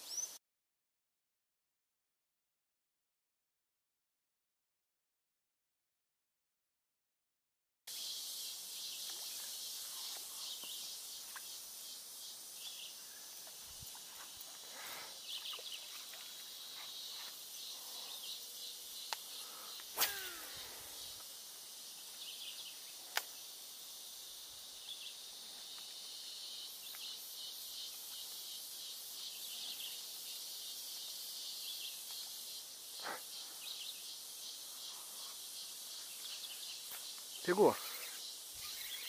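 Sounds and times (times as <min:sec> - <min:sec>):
insects chorus buzzing: 0:07.9 - 0:39.0.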